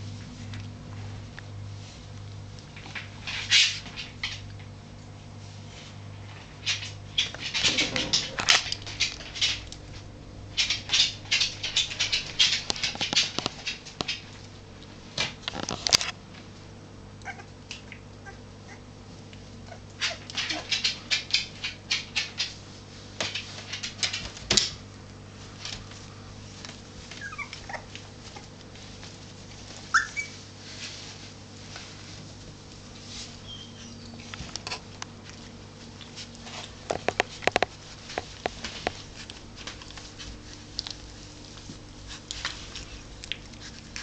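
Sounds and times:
puppies squeaking and whimpering: 17.2s - 17.5s, 27.1s - 28.5s, 29.8s - 30.5s, 33.4s - 34.3s
puppies whining: 17.2s - 18.9s, 27.0s - 28.6s, 29.8s - 30.5s, 33.4s - 34.4s.

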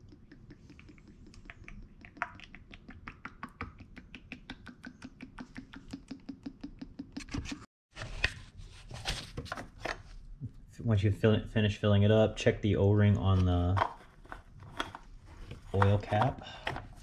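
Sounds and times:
handling noise scraping and rustling: 7.3s - 10.2s, 13.2s - 17.0s.

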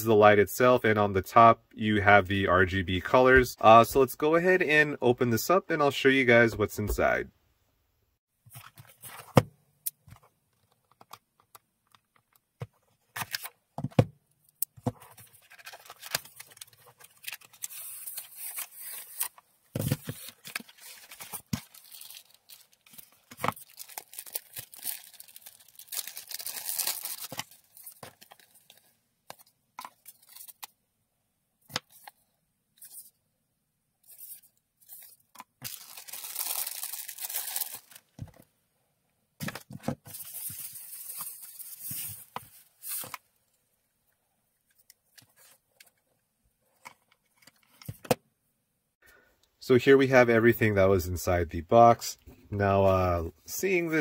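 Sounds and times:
plastic packaging crinkling: 15.2s - 28.9s, 34.9s - 38.2s.

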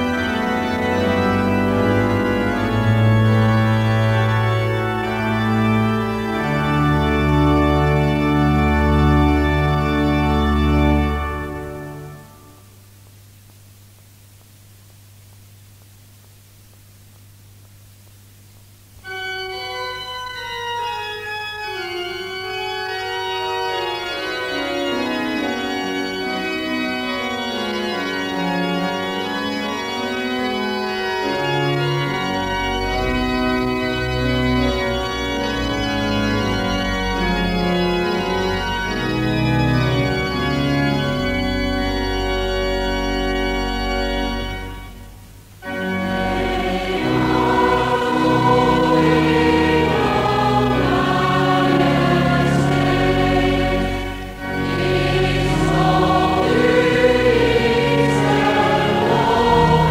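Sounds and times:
church organ playing chords: 0.0s - 12.8s, 19.0s - 59.9s
congregation singing: 45.6s - 59.9s.

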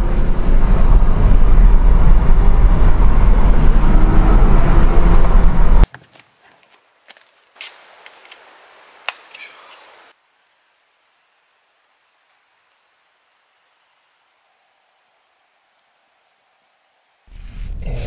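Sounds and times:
car engine and tyre noise: 0.0s - 5.9s, 17.0s - 18.0s.

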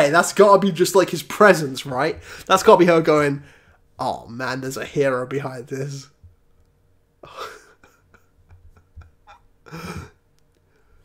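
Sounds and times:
man's breathy laughter: 7.2s - 10.3s.

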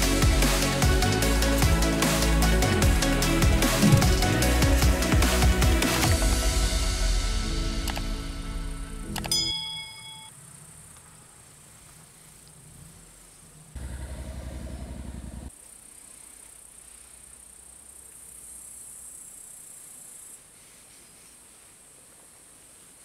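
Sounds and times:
crickets chirping: 9.5s - 23.0s.

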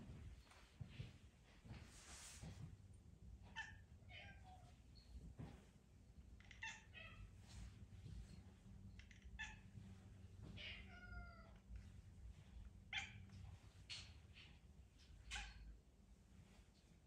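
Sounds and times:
cat meowing: 3.5s - 4.7s, 6.4s - 7.4s, 8.9s - 9.8s, 10.6s - 11.6s.

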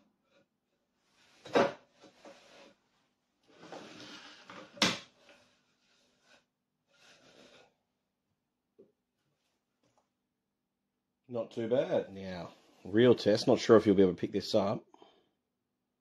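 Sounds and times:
wooden boards scraping: 3.5s - 7.7s.

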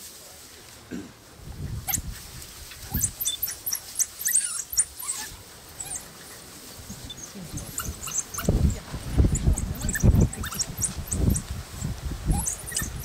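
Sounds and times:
wild dogs squeaking and twittering: 1.8s - 13.0s.

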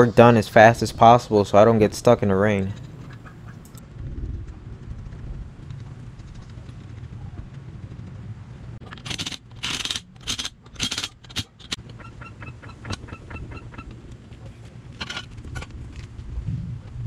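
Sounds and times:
impact wrench bursts: 9.0s - 11.8s.

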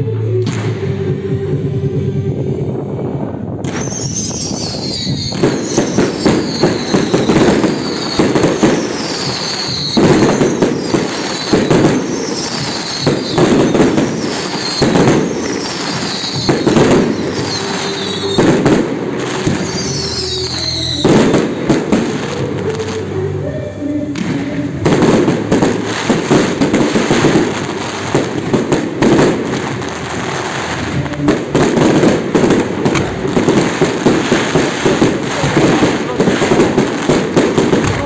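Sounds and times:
fireworks crackling: 3.6s - 38.0s
falling whistle tone: 3.7s - 8.2s.

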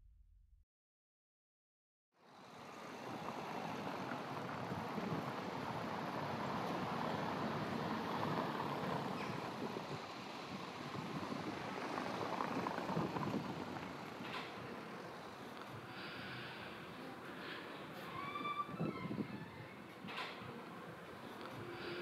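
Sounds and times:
vehicles passing on street: 2.2s - 22.0s
motorcycle passing: 5.8s - 17.0s.

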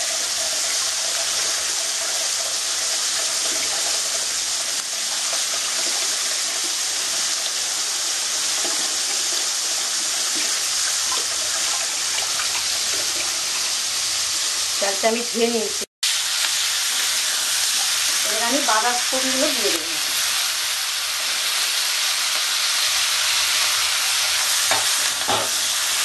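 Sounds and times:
tap water running onto rice: 0.0s - 14.8s.

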